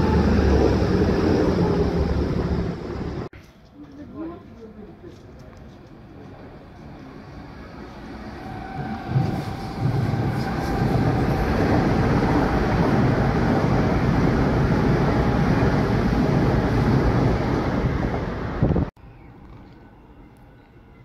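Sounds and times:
train wheels rumbling on rails: 5.2s - 18.9s.

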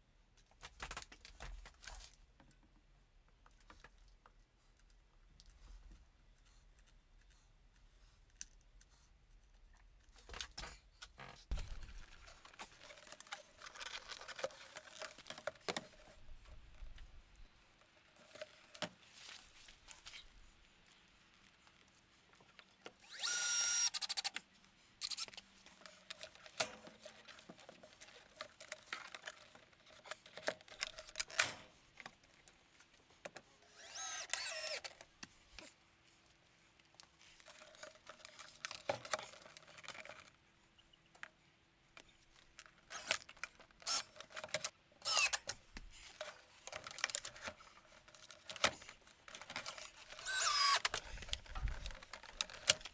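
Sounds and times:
power drill driving screws: 23.0s - 24.3s, 33.7s - 34.9s, 42.9s - 43.1s, 43.8s - 44.1s, 45.0s - 45.5s, 50.2s - 50.9s.

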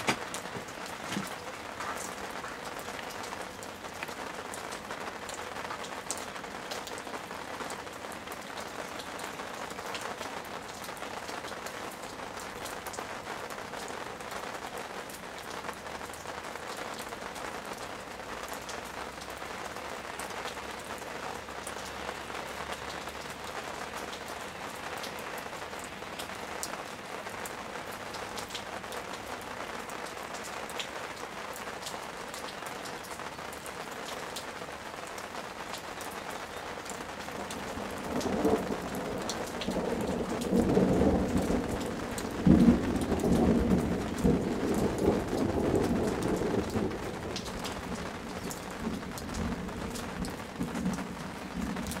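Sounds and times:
rain falling: 0.0s - 52.0s.

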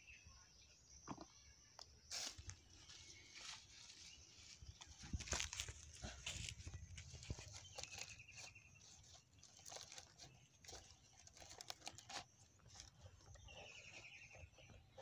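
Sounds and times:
leaves and stems rustling: 2.1s - 13.8s.

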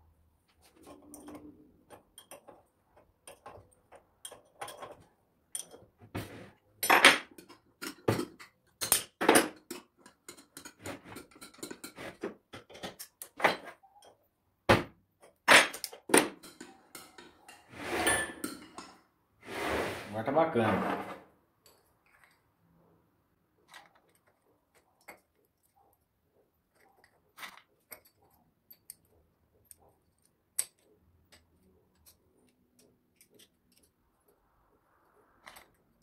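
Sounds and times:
metal tools clinking on workbench: 0.8s - 5.9s.

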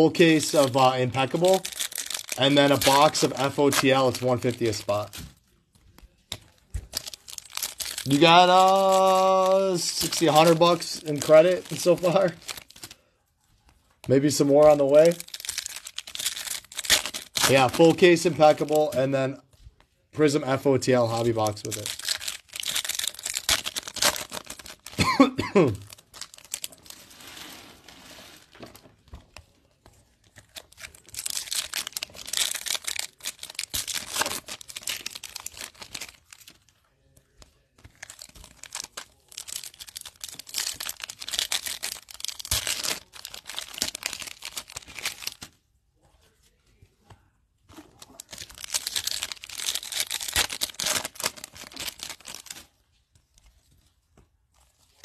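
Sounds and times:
foil wrappers tearing and crinkling: 0.0s - 5.4s, 6.8s - 13.0s, 14.1s - 19.0s, 20.9s - 28.6s, 30.2s - 36.6s, 37.6s - 45.6s, 47.7s - 52.8s.

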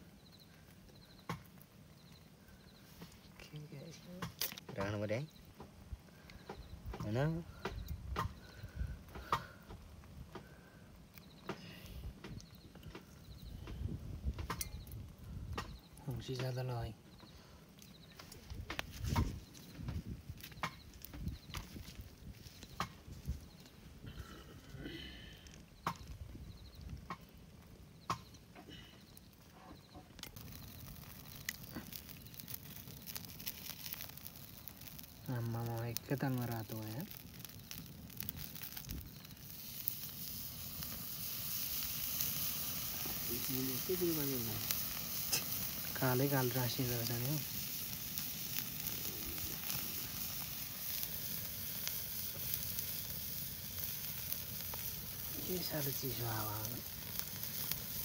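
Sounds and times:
faint crackle of fine ticks: 0.0s - 27.4s, 28.0s - 58.0s
chicken sizzling on a grill: 0.0s - 58.0s.

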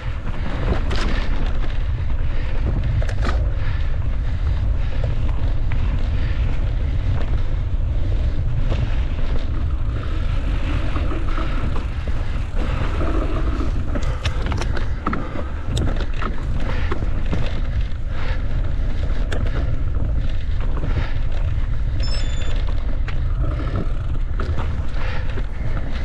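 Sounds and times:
bike rattles and knocks: 0.0s - 26.0s
wind rumbling on microphone: 0.0s - 26.0s
brief high beep: 22.0s - 22.6s.

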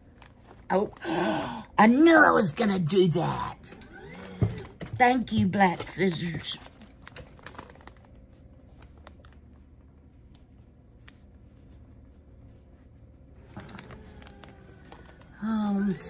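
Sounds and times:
low steady hum: 0.0s - 16.0s
blanket packaging rustling: 5.1s - 16.0s.

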